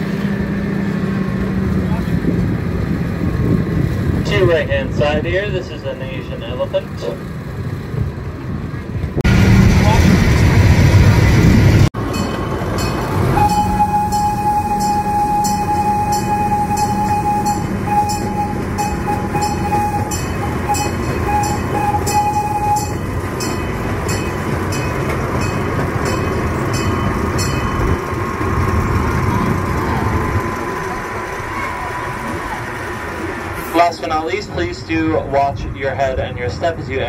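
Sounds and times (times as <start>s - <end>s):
train rumbling on track: 0.0s - 37.0s
high steady squeal: 12.1s - 34.4s.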